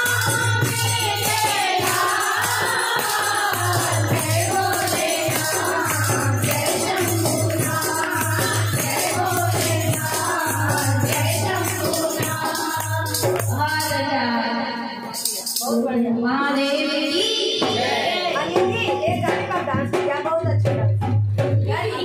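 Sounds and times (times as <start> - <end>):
jingling hand percussion: 0.0 - 14.1, 15.0 - 15.9
women singing devotional song: 0.0 - 20.8.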